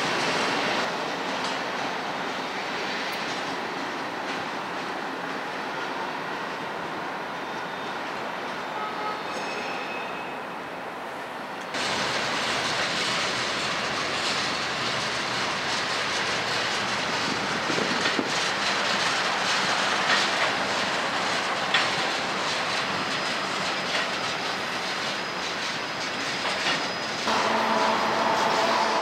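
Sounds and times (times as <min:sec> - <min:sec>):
freight train cars rolling past: 0:00.0 - 0:29.0
wheels clacking on rail joints: 0:11.7 - 0:29.0.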